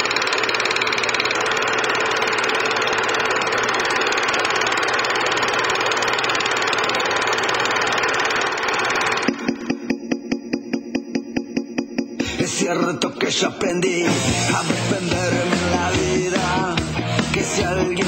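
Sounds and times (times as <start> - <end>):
machine running with fast rattle: 0.0 - 10.3.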